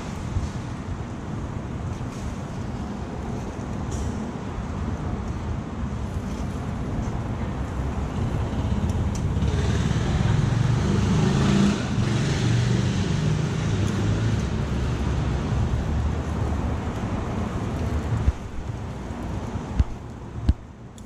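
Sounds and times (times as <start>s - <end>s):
low traffic rumble: 0.0s - 21.0s
vehicle passing close by: 9.3s - 18.3s.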